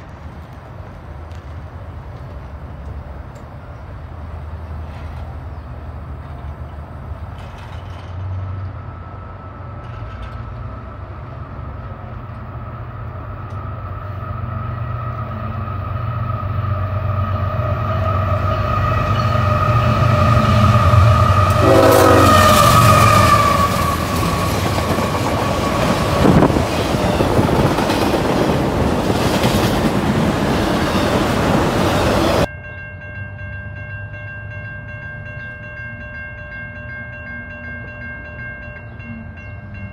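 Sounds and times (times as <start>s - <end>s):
locomotive engine rumbling: 0.0s - 32.5s
train cars clattering on rails: 6.2s - 8.8s, 9.7s - 10.8s, 18.9s - 32.5s
train horn held chord: 17.3s - 24.2s.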